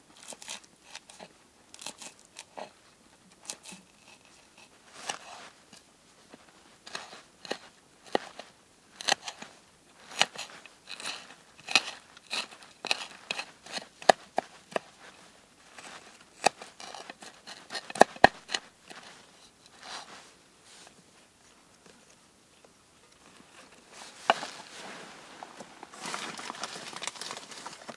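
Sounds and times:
knife chopping herbs: 1.8 - 2.6, 6.9 - 9.4, 10.0 - 15.1, 15.8 - 19.1.

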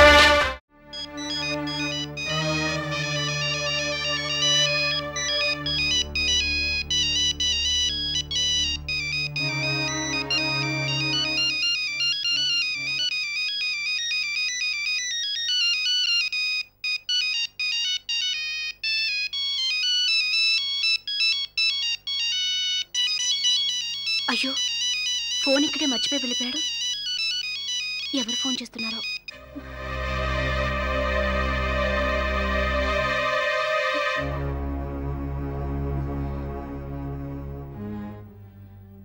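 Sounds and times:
polyphonic phone ringtone: 0.9 - 30.4.

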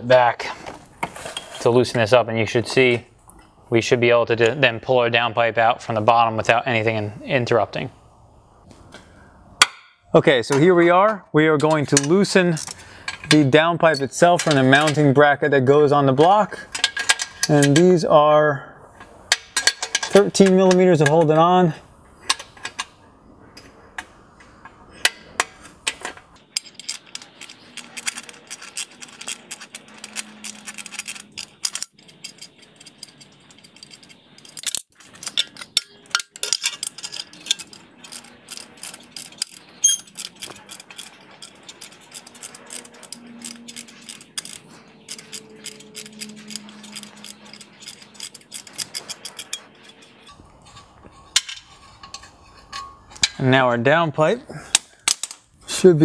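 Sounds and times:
metal clinks of tool on bolt: 25.0 - 53.4
ratchet wrench clicking: 26.6 - 50.3.

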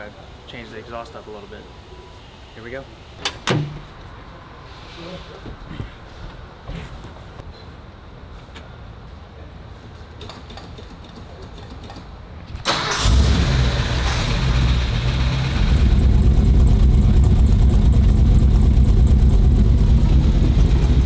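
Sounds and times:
pickup engine starting and running: 12.7 - 21.0.

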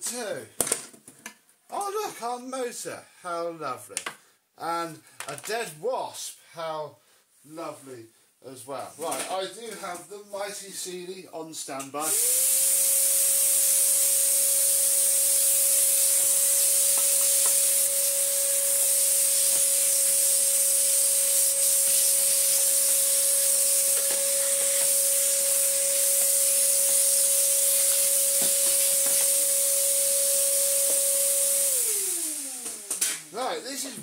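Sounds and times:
vacuum cleaner running: 12.0 - 34.0.

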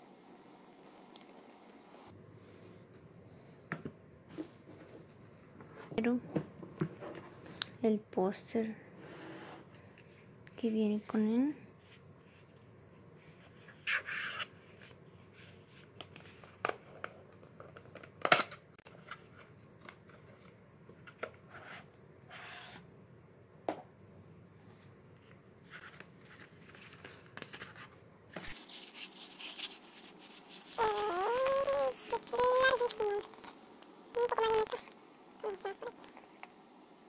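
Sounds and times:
person speaking: 10.5 - 11.7, 30.7 - 36.4
paper rustling and sliding: 24.6 - 32.3.

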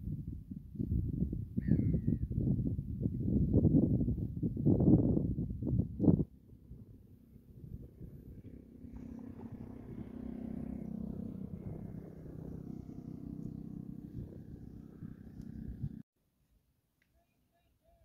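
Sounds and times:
distant engine humming: 6.2 - 16.0.

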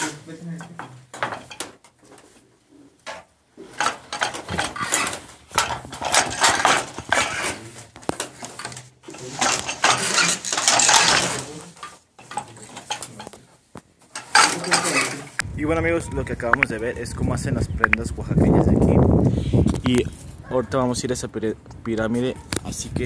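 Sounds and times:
wooden loom clattering: 0.6 - 1.9, 3.0 - 13.4, 14.1 - 15.4.

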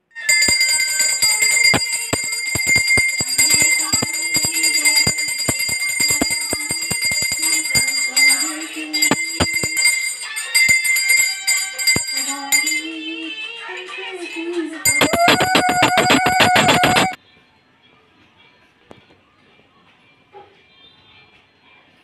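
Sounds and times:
bell ringing quickly: 0.2 - 13.0, 14.9 - 17.2
wavering melody: 14.9 - 17.2.

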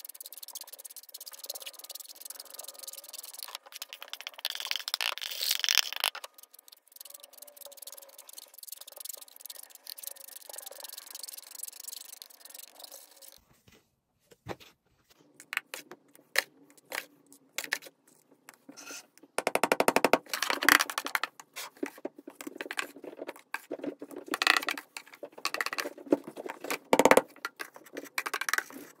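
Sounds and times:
powder being scooped and scraped: 15.3 - 19.2, 20.3 - 26.8, 27.4 - 29.0.

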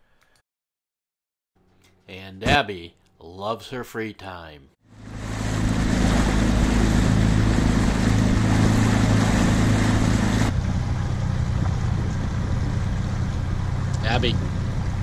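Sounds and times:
outboard motor running: 4.8 - 15.0
rush of wind and water: 4.9 - 15.0.

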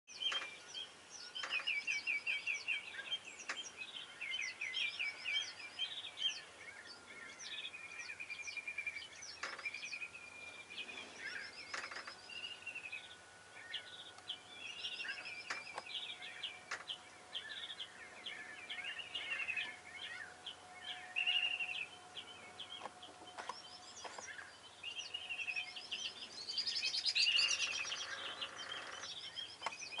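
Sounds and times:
birds chirping and trilling: 0.1 - 30.0.

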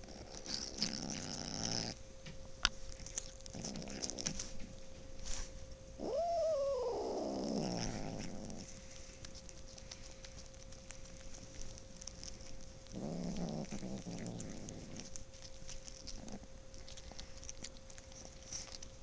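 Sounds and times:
cat growling: 0.0 - 2.0, 3.0 - 4.4, 6.0 - 8.8, 12.0 - 18.8
cat yowling: 6.0 - 7.4.

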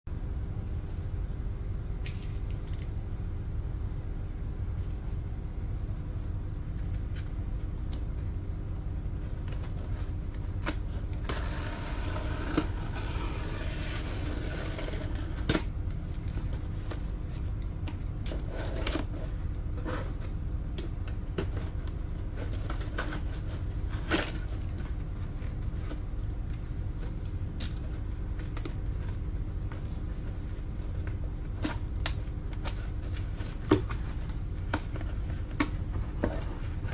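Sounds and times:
steady low hum: 0.1 - 36.9.

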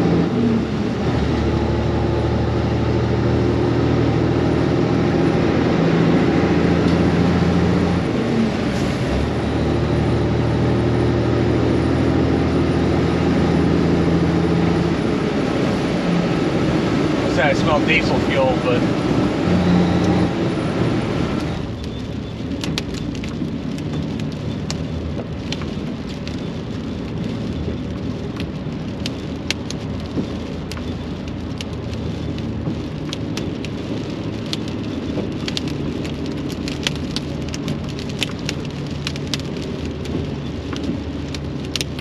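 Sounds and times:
diesel engine drone: 0.0 - 42.0
road noise: 0.0 - 42.0
rock salt ticking on truck cab: 21.4 - 42.0.

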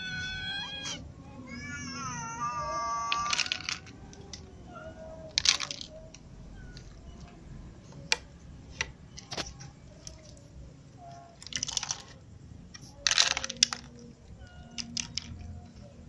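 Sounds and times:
cat meowing: 0.0 - 3.7, 4.4 - 5.3
dry cat food crunching: 3.1 - 4.5, 11.2 - 16.0.

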